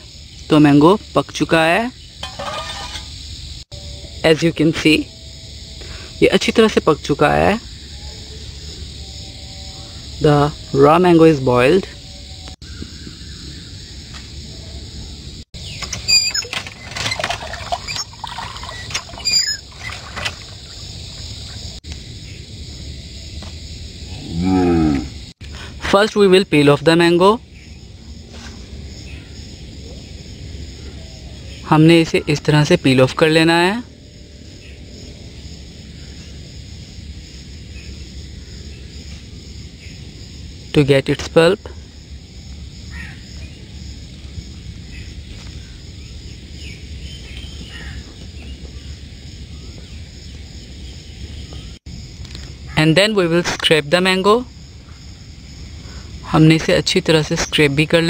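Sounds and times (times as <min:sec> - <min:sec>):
water splashing into clay pot: 0:02.2 - 0:03.1, 0:16.5 - 0:21.5.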